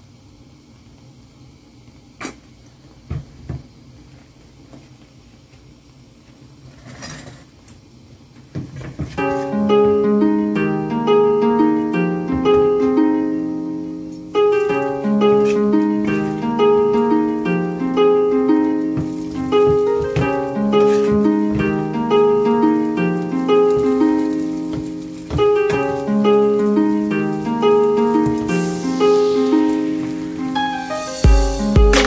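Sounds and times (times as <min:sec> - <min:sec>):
plucked harp-like melody: 0:09.2 - 0:32.0.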